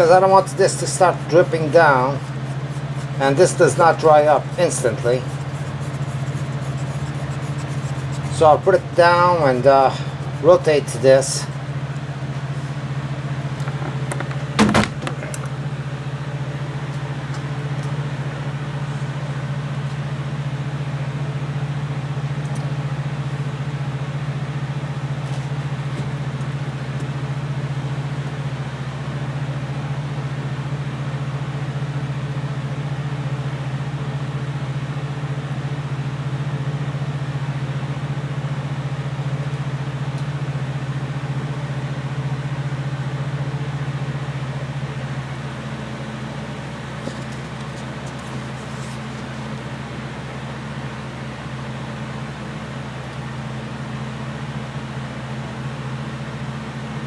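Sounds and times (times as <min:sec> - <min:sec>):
low machine hum: 0:00.0 - 0:57.0
sharp knock: 0:13.7 - 0:15.2.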